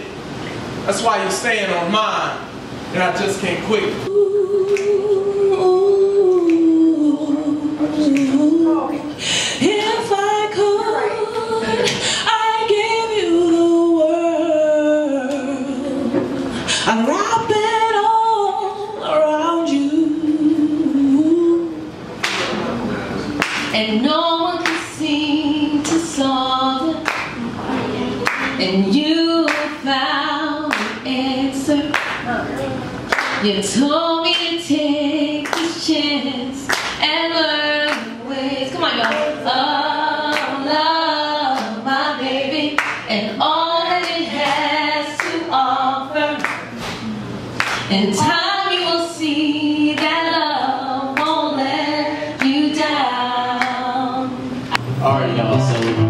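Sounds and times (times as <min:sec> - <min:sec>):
woman singing unaccompanied: 0:04.1 - 0:22.0, 0:23.7 - 0:46.7, 0:47.8 - 0:55.6
sharp hand claps: 0:04.7 - 0:05.0, 0:22.2 - 0:22.6, 0:23.4 - 0:23.8, 0:24.6 - 0:24.9, 0:27.0 - 0:27.4, 0:28.2 - 0:28.6, 0:29.5 - 0:29.8, 0:30.7 - 0:31.0, 0:31.9 - 0:32.3, 0:33.1 - 0:33.4, 0:35.4 - 0:35.7, 0:36.7 - 0:37.0, 0:39.0 - 0:39.3, 0:42.8 - 0:43.1, 0:45.2 - 0:45.4, 0:46.4 - 0:47.0, 0:47.6 - 0:47.9.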